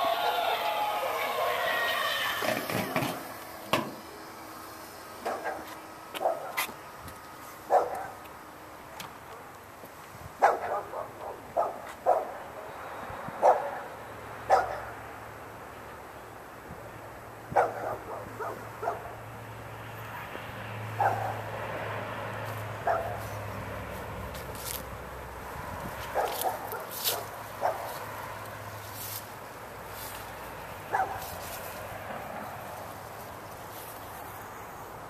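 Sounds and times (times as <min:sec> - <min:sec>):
dog barking: 0:05.2 - 0:06.6, 0:07.7 - 0:08.2, 0:10.4 - 0:12.5, 0:13.4 - 0:13.9, 0:14.5 - 0:15.0, 0:17.5 - 0:19.2, 0:21.0 - 0:21.4, 0:22.8 - 0:23.2, 0:26.1 - 0:28.0, 0:30.9 - 0:31.3.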